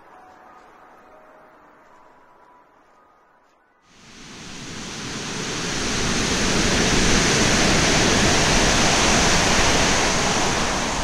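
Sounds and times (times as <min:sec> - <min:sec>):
floodwater rushing: 0:04.0 - 0:11.0.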